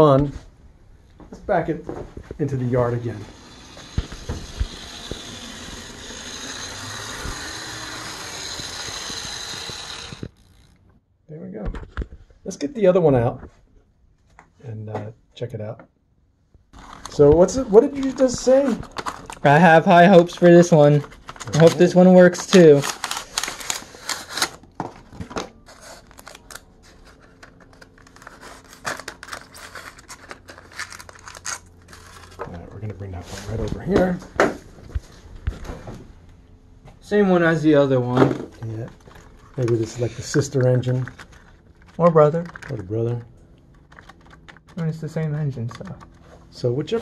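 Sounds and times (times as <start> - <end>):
model train motor whine: 2.9 - 10.9
styrofoam and cardboard scraping: 25.6 - 32.5.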